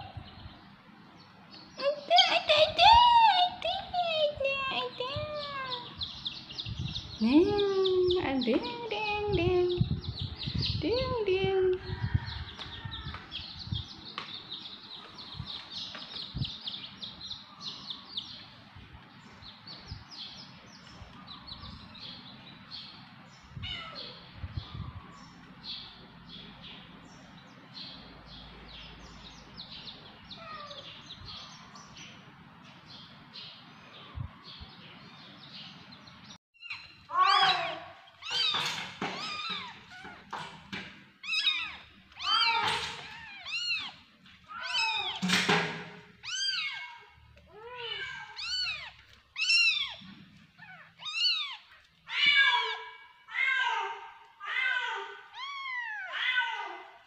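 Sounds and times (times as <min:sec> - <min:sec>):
baby chicks peeping: 0:00.0 - 0:52.9
kittens mewing: 0:23.5 - 0:24.3, 0:36.6 - 0:40.6, 0:41.2 - 0:45.4, 0:46.1 - 0:57.0.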